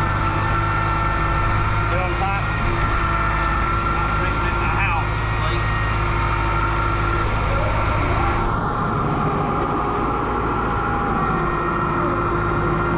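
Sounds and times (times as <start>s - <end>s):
tractor diesel engine running: 0.0s - 12.9s.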